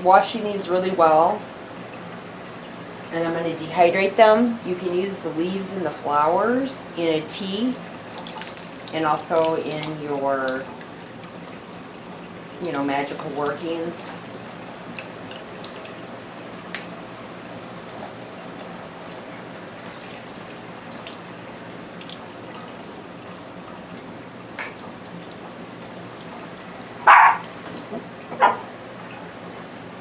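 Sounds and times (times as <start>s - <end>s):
kitchen faucet running: 0.0s - 27.9s
water splashing over leaves: 7.4s - 27.9s.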